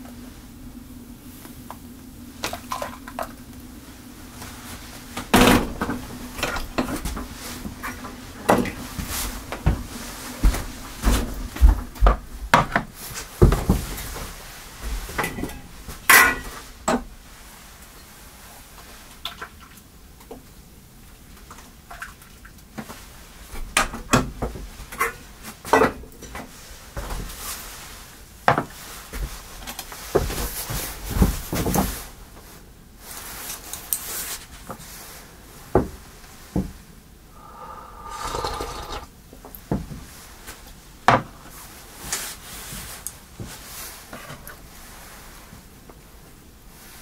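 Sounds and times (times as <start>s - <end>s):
short scrape: 37.4s - 39.1s.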